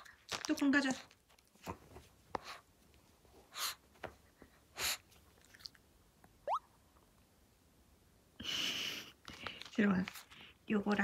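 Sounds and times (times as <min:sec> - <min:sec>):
toy squeak: 0:06.5 - 0:06.7.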